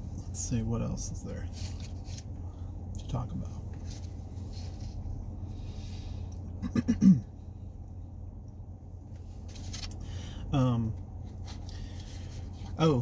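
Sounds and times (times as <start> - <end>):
steady low hum: 0.0 - 13.0
man clearing his throat: 6.6 - 7.3.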